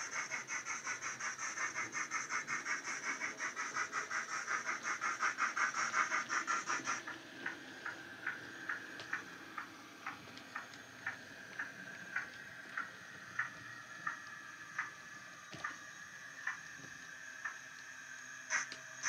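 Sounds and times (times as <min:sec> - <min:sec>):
faint hiss: 0:00.0 - 0:19.0
model steam locomotive chuffs: 0:00.0 - 0:19.0
scattered clicks: 0:18.5 - 0:18.8.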